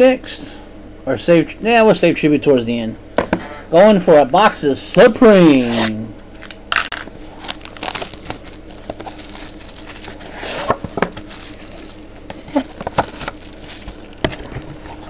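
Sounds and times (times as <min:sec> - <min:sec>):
plastic wrapping crinkling and tearing: 0:06.8 - 0:15.0.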